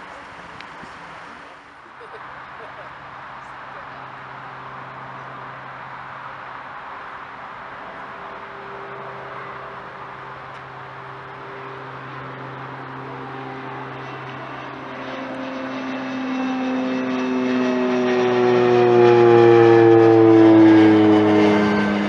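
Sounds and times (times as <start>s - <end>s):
turboprop aircraft flying overhead: 0.0s - 22.0s.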